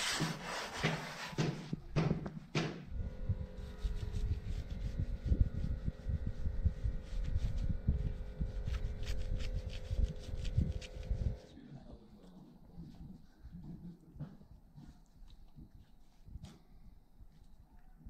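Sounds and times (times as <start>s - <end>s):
hand rubbing butter on bread: 0.0s - 1.8s, 3.5s - 11.5s
faint steady hum: 2.9s - 18.0s.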